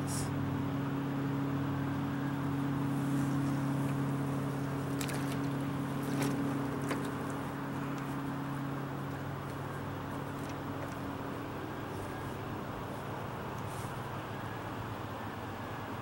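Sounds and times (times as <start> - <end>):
motor humming: 1.3 - 15.1.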